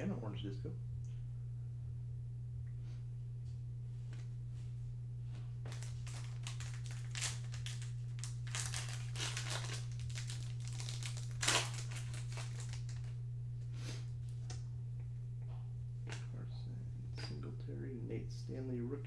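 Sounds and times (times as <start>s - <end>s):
low hum: 0.0s - 19.0s
foil wrapper crinkling: 5.6s - 13.2s.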